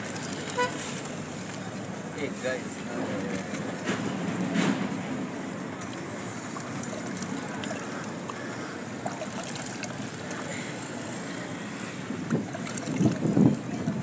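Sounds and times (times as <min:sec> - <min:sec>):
wind on microphone: 0:12.0 - 0:14.0.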